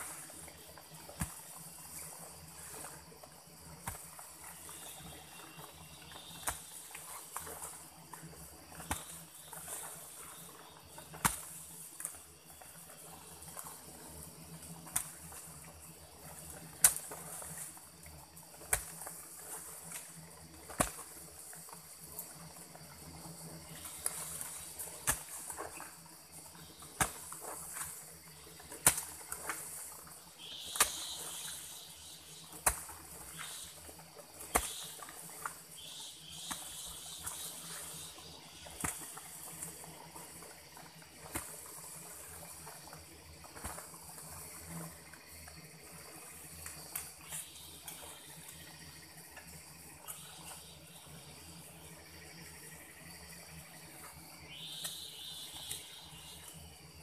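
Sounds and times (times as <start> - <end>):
hoe blade striking soil: 6.2 - 7.5, 8.8 - 9.4, 11.1 - 12.2, 18.6 - 21.1, 23.8 - 25.8, 26.7 - 28.0, 28.7 - 39.7.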